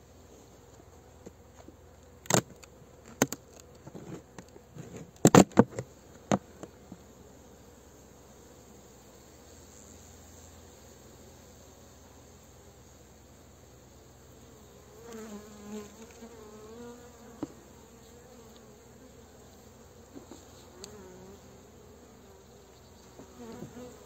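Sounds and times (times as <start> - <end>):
honeybees buzzing: 6.0 - 24.0.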